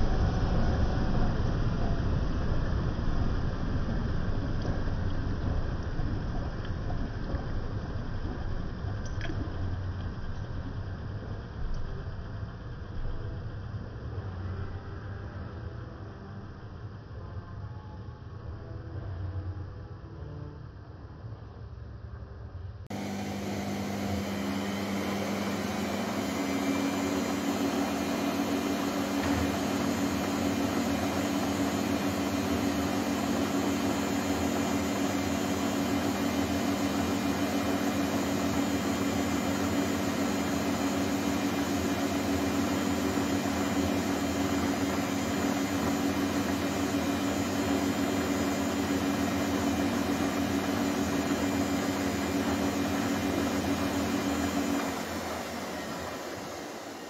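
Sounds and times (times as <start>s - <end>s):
washing machine drum spinning: 22.9s - 57.0s.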